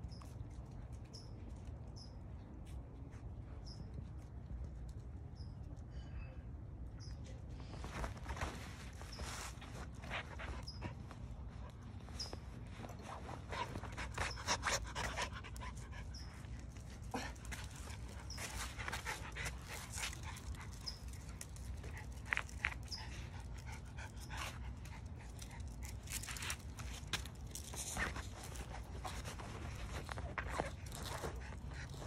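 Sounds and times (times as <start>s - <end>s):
quick scuffling noises: 7.6s - 15.0s
dogs panting: 9.0s - 32.0s.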